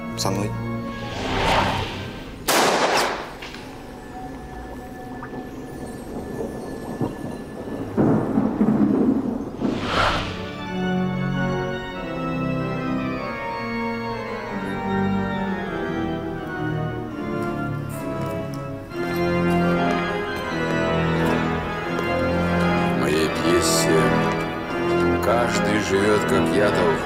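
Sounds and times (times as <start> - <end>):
pipe organ playing held chords: 10.4 - 27.0.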